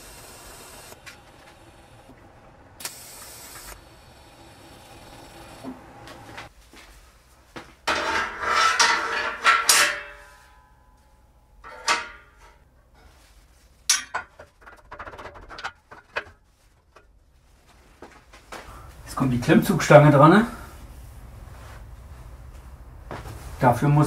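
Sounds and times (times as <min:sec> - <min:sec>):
metal clanks and clicks: 0:07.9 - 0:10.6, 0:11.6 - 0:12.6, 0:13.9 - 0:17.2.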